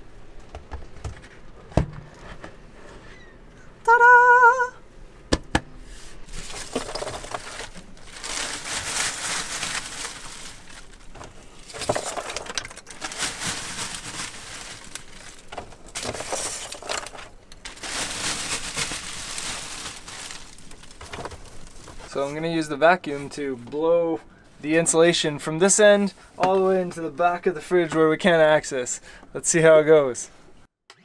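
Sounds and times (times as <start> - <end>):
plastic bag crinkling: 6.2 - 22.2.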